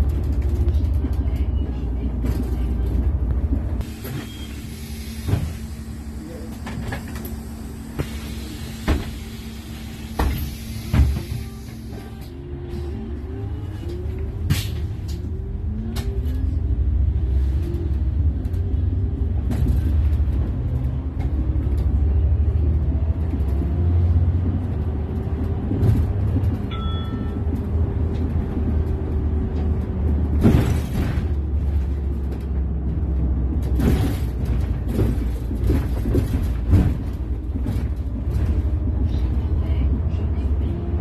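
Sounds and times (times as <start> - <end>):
bus engine rumble: 0.0 - 41.0
short beep: 4.0 - 4.7
body rattles and clicks: 24.3 - 40.2.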